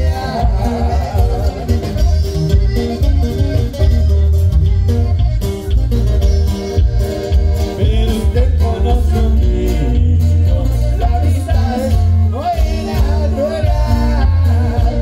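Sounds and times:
person singing: 0.0 - 2.3, 7.8 - 15.0
band playing with heavy bass: 0.0 - 15.0.

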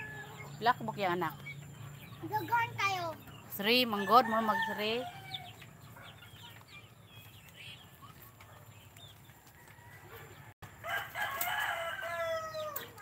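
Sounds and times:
chickens clucking: 0.0 - 13.0
rooster crowing: 4.0 - 5.5, 9.5 - 13.0.

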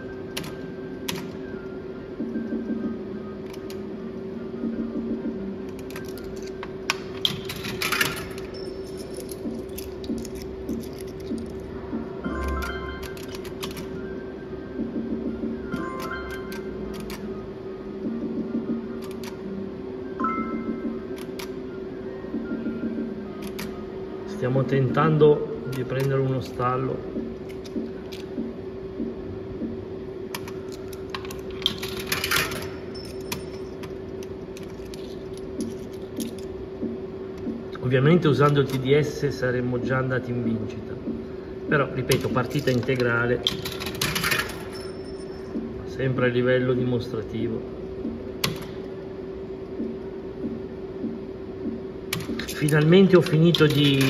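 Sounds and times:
slot machine clicks: 0.0 - 1.4, 5.7 - 14.0, 15.6 - 17.3, 30.3 - 36.5, 42.0 - 45.5, 48.4 - 48.8, 52.1 - 54.0
slot machine hum: 0.0 - 54.0
coin rattling through coin mechanism: 7.2 - 11.7, 30.4 - 36.5, 42.1 - 45.2, 52.1 - 54.0
electronic win jingle: 12.1 - 14.1, 15.0 - 16.9, 20.2 - 21.1.

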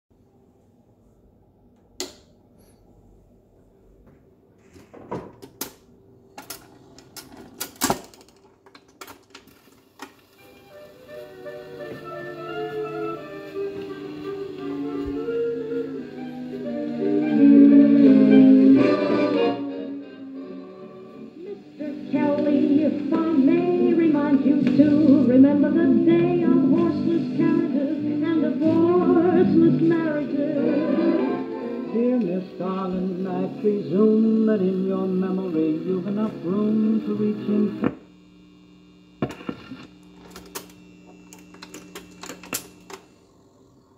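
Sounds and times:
song on record player: 9.8 - 43.9
record changer clicking and clunking: 39.2 - 43.1.

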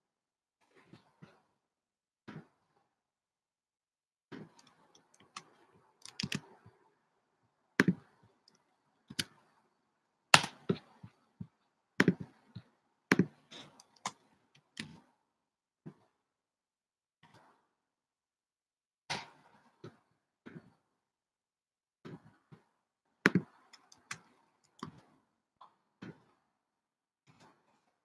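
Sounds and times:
typing on a computer keyboard: 4.6 - 6.6.

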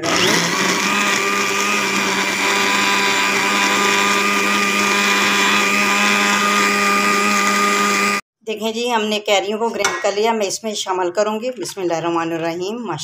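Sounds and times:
electric blender running: 0.0 - 8.2.

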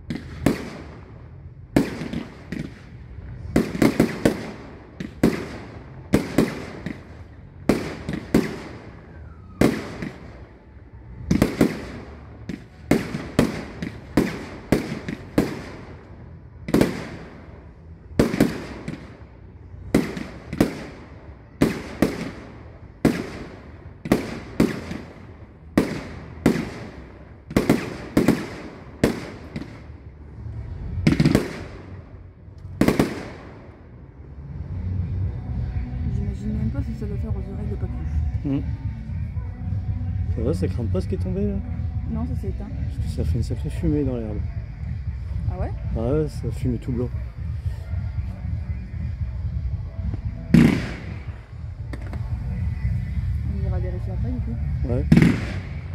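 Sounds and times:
fireworks bangs with echo: 0.0 - 30.1, 30.9 - 33.9, 40.7 - 54.0, 54.7 - 55.9.

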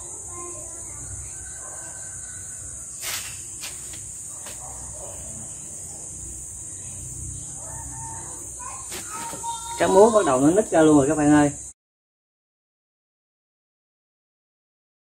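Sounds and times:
high-pitched insect chorus: 0.0 - 11.8.

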